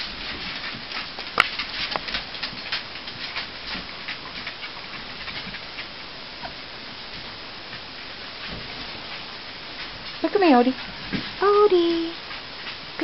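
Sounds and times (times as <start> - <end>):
puppy claws clicking on wooden floor: 0.0 - 6.6.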